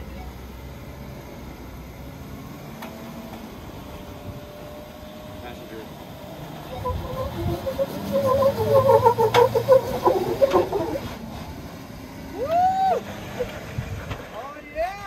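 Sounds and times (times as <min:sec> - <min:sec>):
engine humming under load: 0:00.0 - 0:15.0
rising and falling tone: 0:06.7 - 0:11.2
short squeaks: 0:06.7 - 0:11.2.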